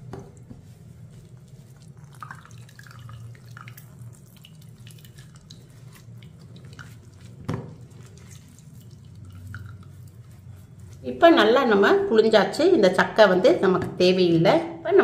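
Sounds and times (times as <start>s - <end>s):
liquid dripping through strainer: 0.0s - 11.0s
wet squelching of cloth bag: 0.0s - 11.4s.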